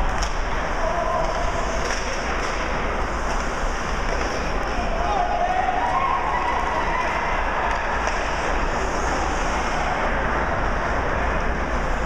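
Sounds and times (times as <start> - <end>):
arena crowd noise: 0.0 - 12.0.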